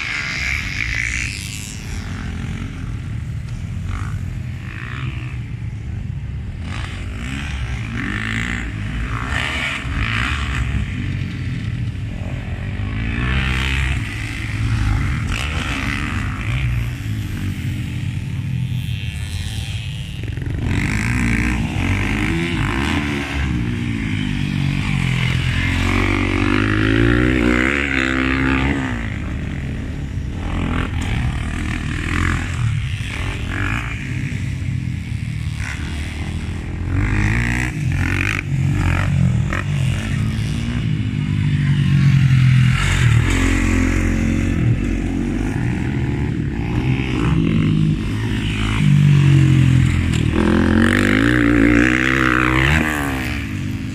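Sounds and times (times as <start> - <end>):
dirt bike engines revving: 0.0 - 53.9.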